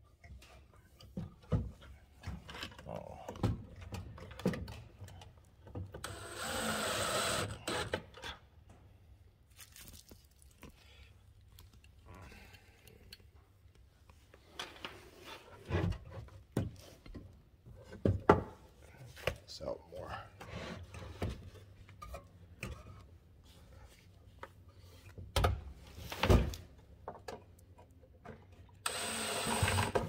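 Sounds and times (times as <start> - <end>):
cordless drill driving screw: 6.0 - 8.0, 28.8 - 30.0.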